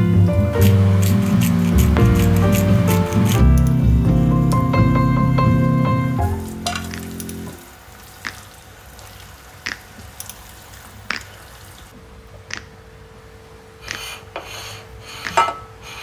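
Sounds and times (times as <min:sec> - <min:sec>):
background music: 0:00.0 - 0:07.7.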